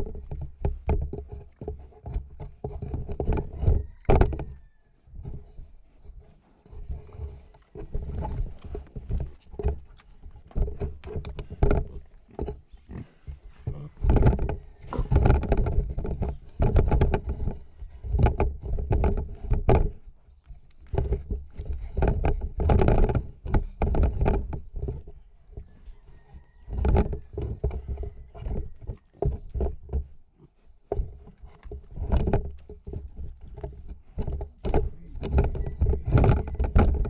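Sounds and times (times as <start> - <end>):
pigs grunting and snuffling: 0.0 - 37.0
snout knocking on camera: 10.4 - 20.0, 30.9 - 37.0.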